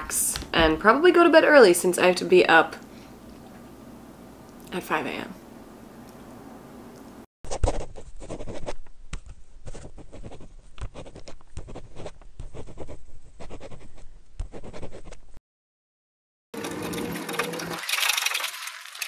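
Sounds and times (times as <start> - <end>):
pen writing on paper: 9.7 - 15.2.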